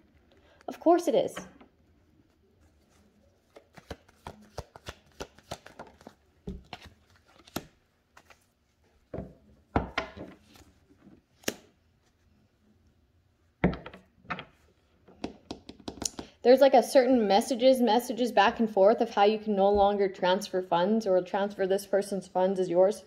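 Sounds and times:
cards being shuffled: 0:02.2 - 0:08.6, 0:10.2 - 0:11.7
cards slapping: 0:03.4 - 0:08.5, 0:10.1 - 0:11.8.

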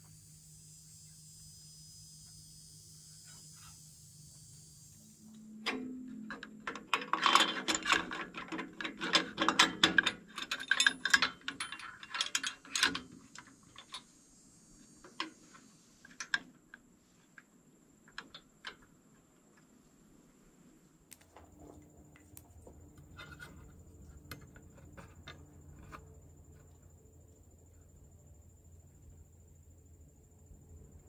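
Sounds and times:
metallic clicks of bracket and bolt: 0:05.6 - 0:14.0.

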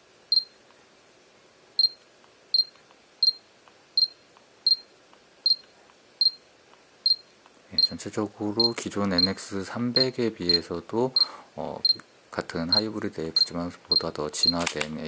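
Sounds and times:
camera autofocus beeps: 0:00.3 - 0:00.6, 0:01.8 - 0:03.4, 0:04.0 - 0:06.4, 0:07.1 - 0:08.0, 0:12.7 - 0:14.8.

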